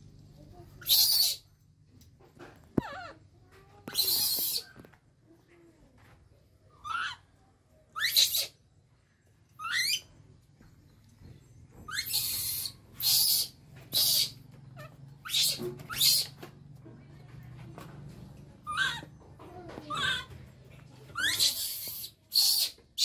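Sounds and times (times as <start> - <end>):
baby monkey screaming: 0.8 - 1.5, 3.8 - 4.9, 6.8 - 7.3, 7.9 - 8.6, 9.6 - 10.1, 11.9 - 16.4, 18.6 - 19.1, 19.9 - 20.3, 21.1 - 23.0.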